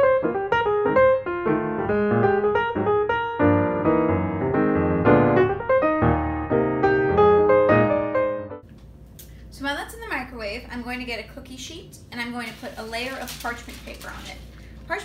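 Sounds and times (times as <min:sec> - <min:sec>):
piano music: 0:00.0 - 0:08.7.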